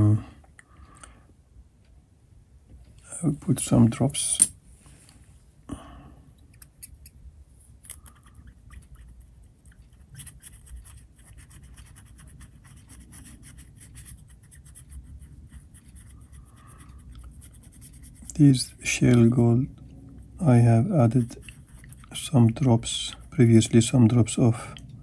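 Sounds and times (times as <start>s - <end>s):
brush scratching in glass dish: 8.3s - 18.8s, 20.3s - 23.6s.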